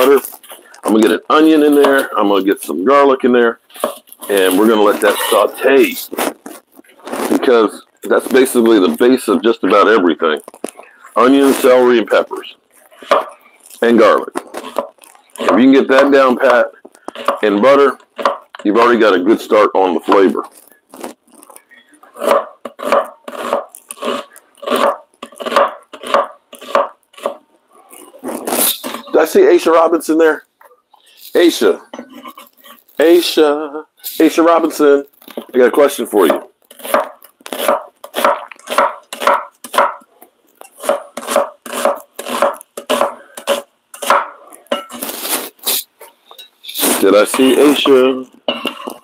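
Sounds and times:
knife chopping on wooden board: 17.2 - 17.4, 22.2 - 27.4, 36.3 - 40.0, 40.8 - 44.4.

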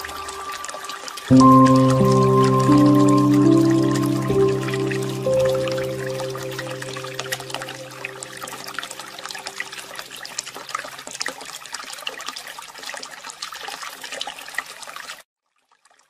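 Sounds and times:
water trickling and dripping: 0.0 - 16.0
soft held music chord: 1.3 - 10.3.

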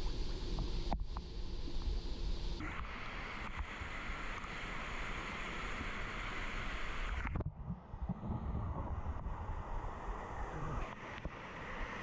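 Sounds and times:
rushing hiss of water: 0.0 - 7.3
low rumble: 7.4 - 10.8.

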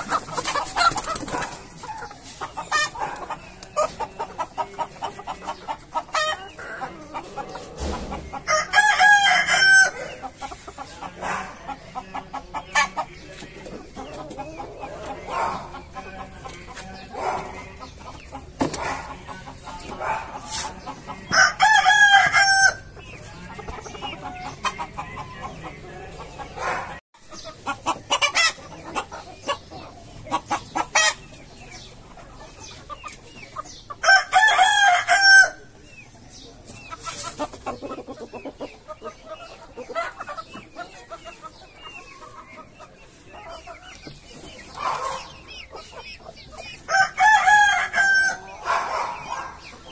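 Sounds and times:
chickens clucking: 0.0 - 49.9
rooster crowing: 46.9 - 48.5.

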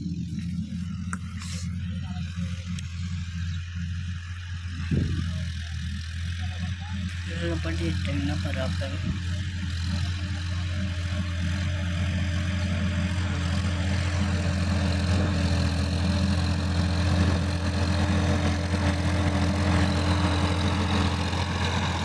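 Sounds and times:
tractor diesel engine droning: 0.0 - 22.0.

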